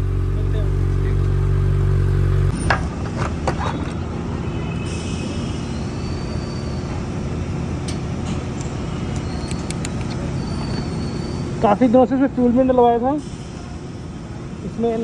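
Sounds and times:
sharp clicks: 0:08.6 - 0:10.2.

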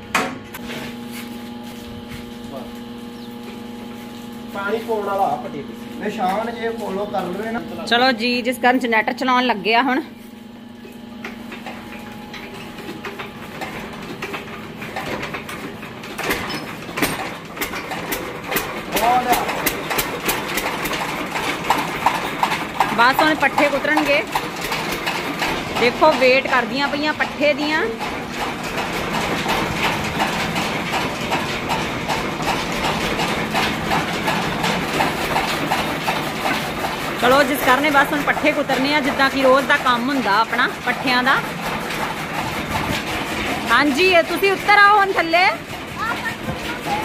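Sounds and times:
diesel engine being hand-cranked: 0:02.0 - 0:47.0
chaff cutter clacking: 0:11.2 - 0:47.0.

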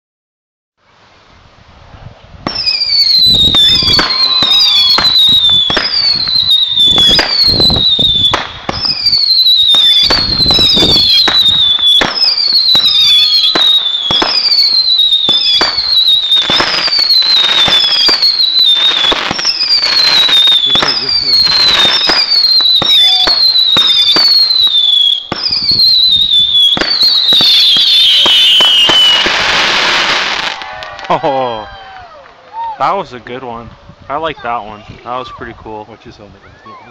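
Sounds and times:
firework bangs and pops: 0:02.4 - 0:31.1
firework whistles falling in pitch: 0:02.5 - 0:31.1.

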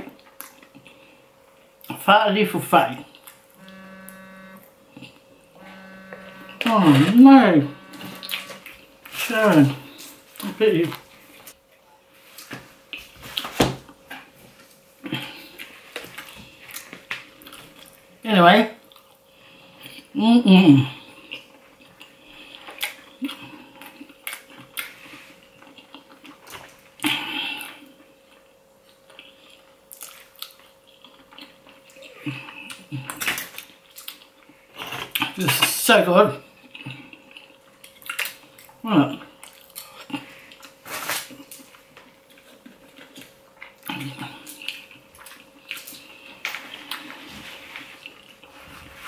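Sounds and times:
chewing with clicks and smacks: 0:15.1 - 0:18.0, 0:18.8 - 0:19.2, 0:21.2 - 0:35.6, 0:36.5 - 0:48.6.

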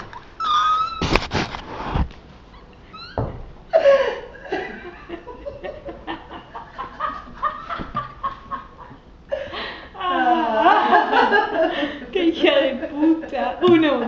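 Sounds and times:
rising squeak: 0:00.4 - 0:01.2, 0:02.5 - 0:03.4
girls giggling and snickering: 0:03.7 - 0:12.1.

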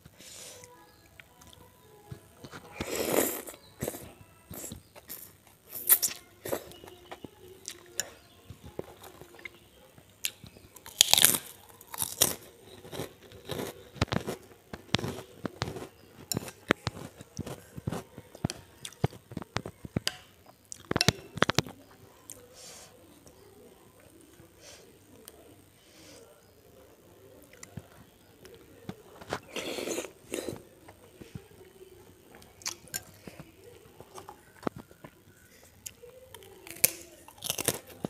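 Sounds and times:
crunchy chewing: 0:00.1 - 0:24.5, 0:26.2 - 0:38.0
spoon in a bowl: 0:15.0 - 0:20.3.

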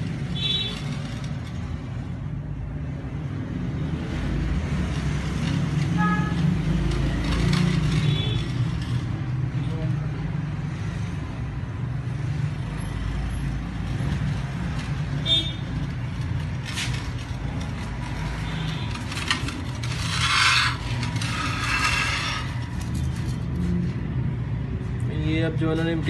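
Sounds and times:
metal clinks and scrapes: 0:00.0 - 0:02.0, 0:05.1 - 0:09.5, 0:12.9 - 0:23.9.

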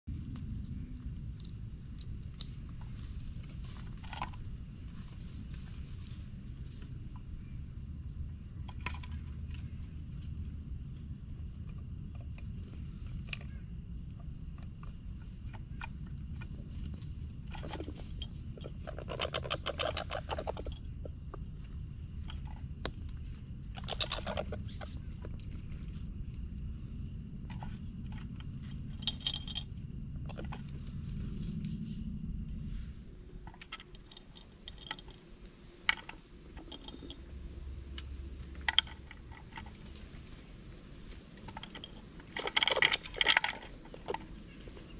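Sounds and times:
steady low rumble: 0:00.0 - 0:44.9
squirrels scrabbling: 0:00.2 - 0:44.9
squirrels clicking on wooden feeder: 0:08.2 - 0:10.4, 0:11.2 - 0:26.5, 0:33.4 - 0:40.2, 0:41.0 - 0:44.9.

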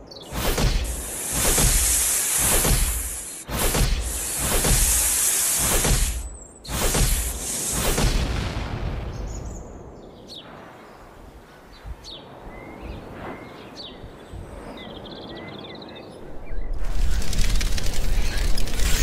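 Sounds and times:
bird chirps: 0:11.7 - 0:16.8.

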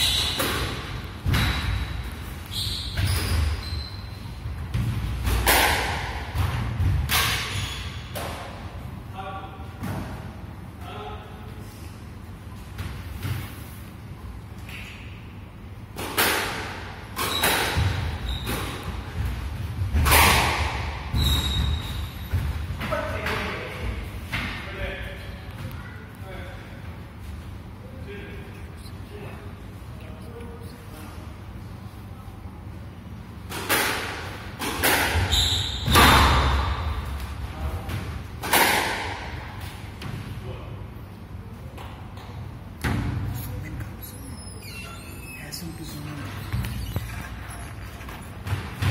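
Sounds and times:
squash ball hitting rackets and walls: 0:00.0 - 0:03.6, 0:04.4 - 0:08.9, 0:09.8 - 0:10.5, 0:15.8 - 0:24.6, 0:33.4 - 0:40.4, 0:41.7 - 0:43.4, 0:48.0 - 0:48.9
shoes squeaking on wooden floor: 0:44.1 - 0:48.9.

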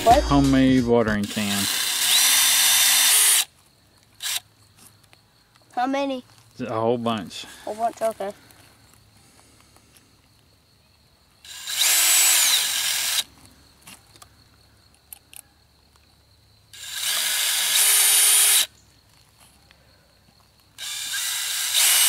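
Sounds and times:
cordless drill boring plastic: 0:01.2 - 0:03.5, 0:04.2 - 0:04.4, 0:11.4 - 0:13.3, 0:16.8 - 0:18.7, 0:20.8 - 0:22.0.

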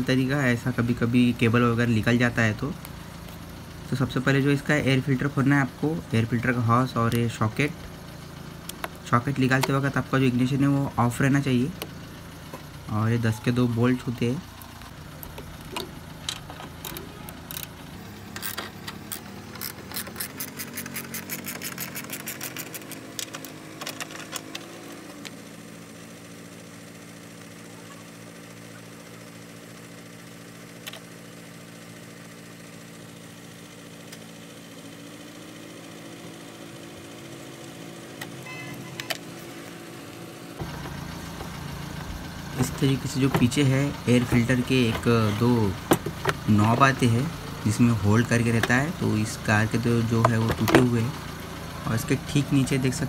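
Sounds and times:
steady low hum: 0:00.0 - 0:53.0
ratchet wrench clicking: 0:15.2 - 0:24.6.

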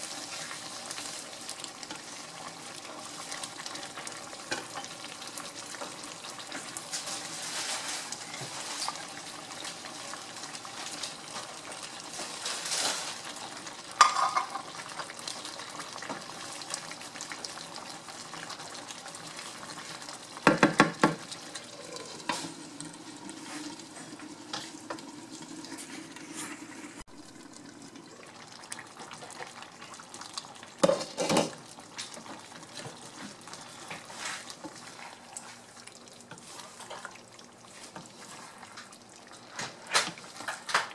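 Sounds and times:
stew sizzling in a skillet: 0:00.0 - 0:40.9
wooden spatula scraping a pan: 0:23.3 - 0:25.0, 0:25.6 - 0:27.1, 0:32.8 - 0:35.7, 0:36.3 - 0:38.8.

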